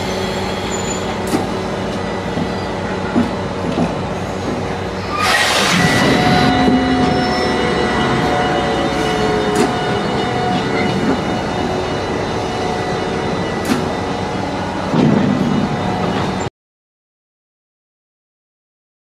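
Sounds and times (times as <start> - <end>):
freight train rolling on track: 0.0 - 16.5
locomotive engine hum: 0.0 - 16.5.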